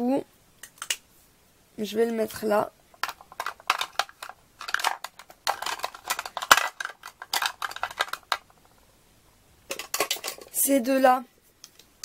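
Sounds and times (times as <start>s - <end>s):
makeup tubes clicking and rattling: 3.0s - 8.8s, 9.7s - 10.6s.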